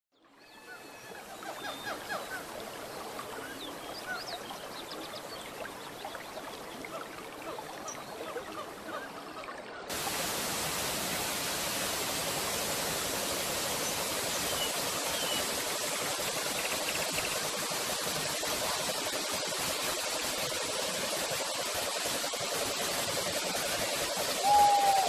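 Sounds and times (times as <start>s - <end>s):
rushing falling water: 0.7s - 9.2s, 9.8s - 25.0s
waterfall pouring into pool: 9.9s - 25.0s.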